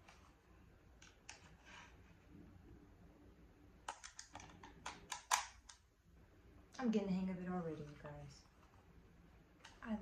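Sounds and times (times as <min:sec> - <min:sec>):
plastic clicking and rattling: 0:03.8 - 0:05.8.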